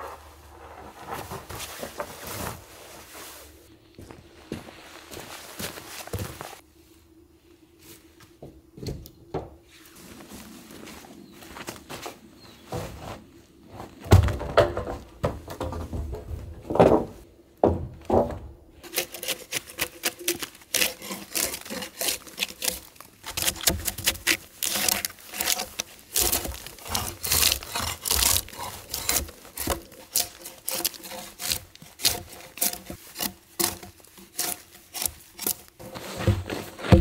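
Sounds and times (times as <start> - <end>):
hand tool scraping wood: 14.8 - 37.0.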